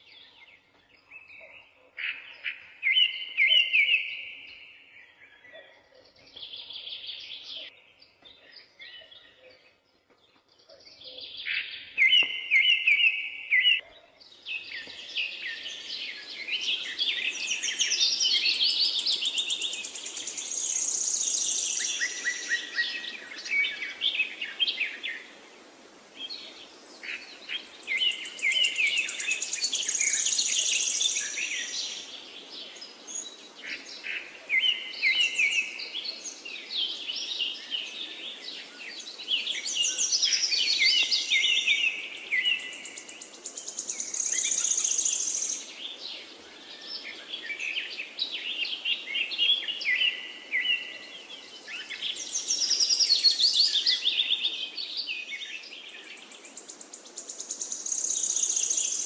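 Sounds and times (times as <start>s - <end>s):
birds chirping and singing: 0.0s - 25.4s, 26.2s - 59.0s
faint steady hiss: 14.2s - 59.0s.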